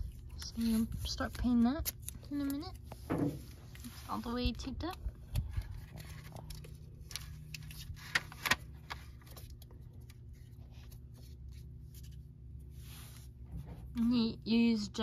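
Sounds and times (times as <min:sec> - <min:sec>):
low background hum: 0:00.0 - 0:15.0
newspaper crinkling and rustling: 0:03.6 - 0:12.2
sharp paper crackles: 0:04.6 - 0:10.3.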